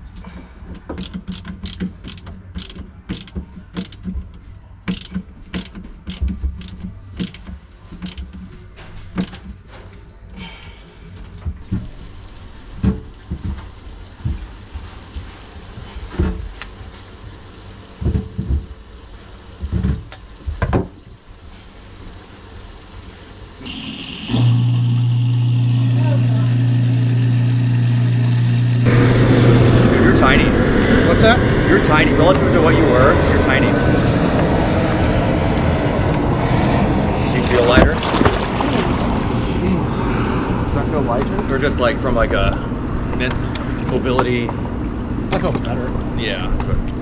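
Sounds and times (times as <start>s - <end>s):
tools knocking and thumping: 0.7s - 8.4s
ratchet clicking: 1.0s - 4.0s, 4.9s - 7.4s, 8.0s - 8.3s.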